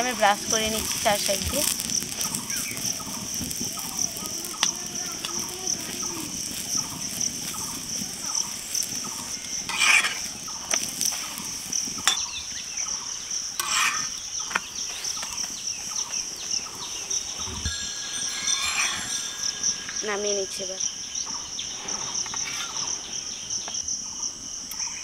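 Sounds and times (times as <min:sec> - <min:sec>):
flatbread frying in ghee: 0:00.0 - 0:23.9
metal spatula scraping: 0:09.6 - 0:12.2, 0:13.6 - 0:15.5, 0:16.8 - 0:23.2
high-pitched drone: 0:16.8 - 0:22.0.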